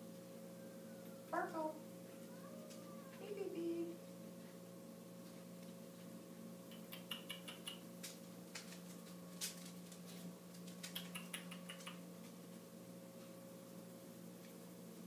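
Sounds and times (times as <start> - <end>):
puppy claws clicking on wood floor: 6.7 - 12.4.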